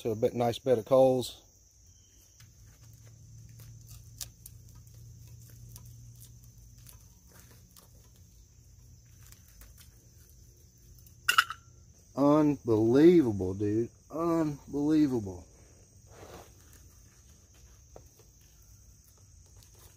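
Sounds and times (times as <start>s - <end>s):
crickets chirping: 0.0s - 19.9s
knife scraping pine log: 2.6s - 11.3s, 16.1s - 18.3s.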